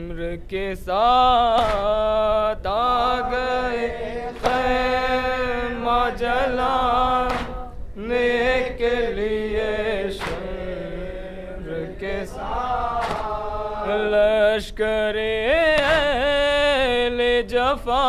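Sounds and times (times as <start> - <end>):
man chanting a lament: 0.0 - 18.0
chest-beating slaps: 1.5 - 2.2, 4.3 - 4.9, 7.1 - 7.8, 10.1 - 10.8, 12.3 - 13.7, 15.6 - 16.4.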